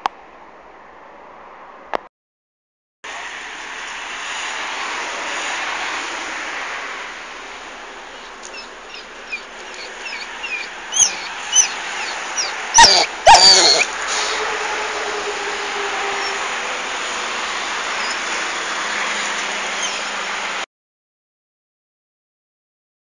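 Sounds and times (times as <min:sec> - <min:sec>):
dog whining: 0:08.5 - 0:14.0, 0:18.0 - 0:18.3, 0:19.7 - 0:20.1
dog yelping: 0:08.5 - 0:14.0, 0:18.0 - 0:18.3, 0:19.7 - 0:20.1.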